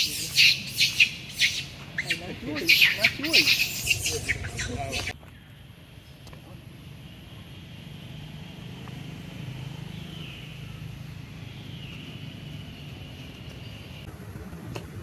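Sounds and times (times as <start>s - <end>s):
engine humming: 0.0s - 5.2s.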